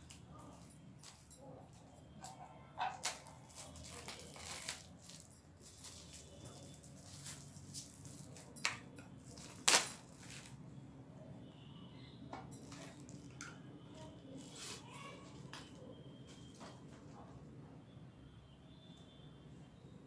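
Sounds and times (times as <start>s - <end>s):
plastic wrapper crinkling: 2.9s - 10.6s.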